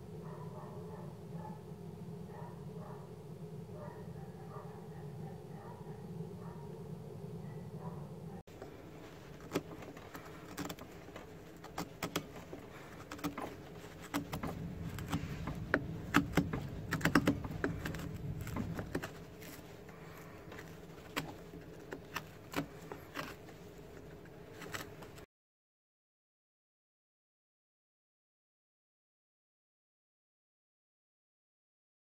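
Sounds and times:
knife scraping wood: 0:08.5 - 0:25.2.

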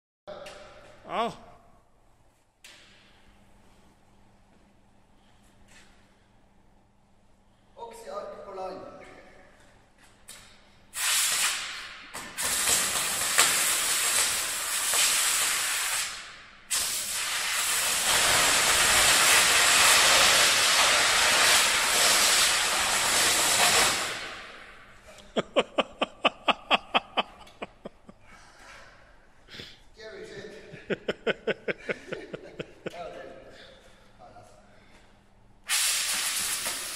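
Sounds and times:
cutting torch harsh hiss: 0:10.9 - 0:24.6, 0:35.7 - 0:36.9.

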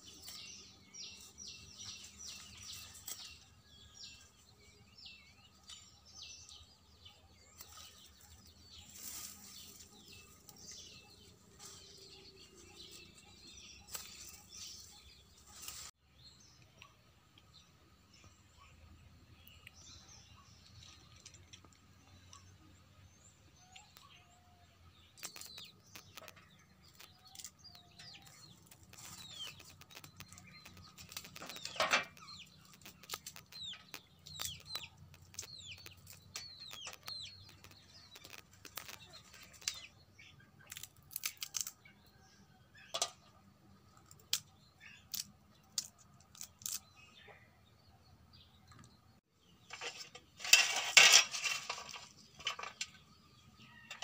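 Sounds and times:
small birds chirping: 0:00.0 - 0:54.0
flower calyces snapping off stems: 0:25.2 - 0:26.3, 0:29.8 - 0:31.7, 0:32.7 - 0:33.5, 0:40.6 - 0:41.8, 0:45.1 - 0:46.8.

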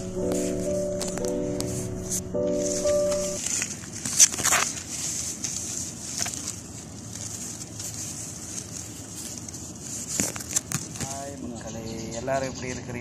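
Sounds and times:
steady high hiss: 0:00.0 - 0:03.6
leaves and branches rustling: 0:00.0 - 0:11.8.

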